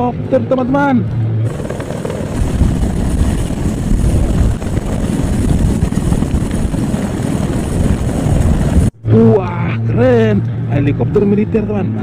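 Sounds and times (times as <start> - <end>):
helicopter turbine noise: 1.0 - 8.9
helicopter rotor chopping: 1.4 - 8.9.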